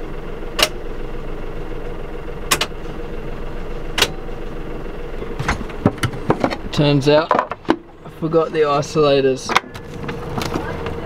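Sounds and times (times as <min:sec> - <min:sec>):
diesel engine idling: 0:00.0 - 0:11.0
sharp clicks or knocks: 0:02.5 - 0:02.7.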